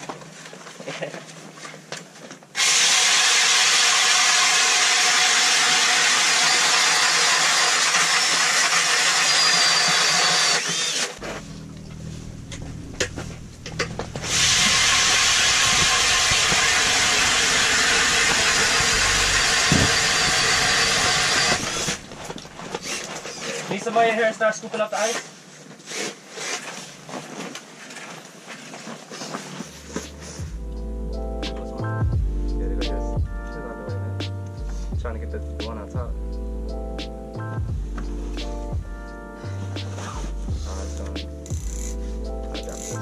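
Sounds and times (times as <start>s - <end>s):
ice auger drilling through ice: 2.6s - 11.2s, 14.2s - 23.8s.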